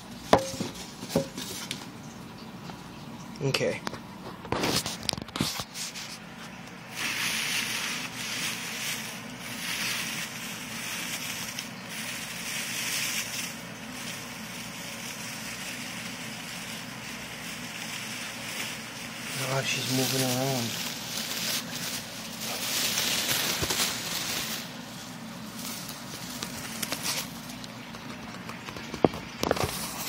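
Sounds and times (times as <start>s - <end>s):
shredded paper rustling in a box: 4.6s - 27.6s, 29.4s - 30.0s.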